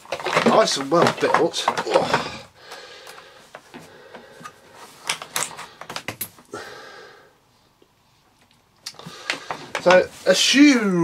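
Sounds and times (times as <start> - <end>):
cable rustling and tapping: 0.0 - 6.5, 8.4 - 10.5.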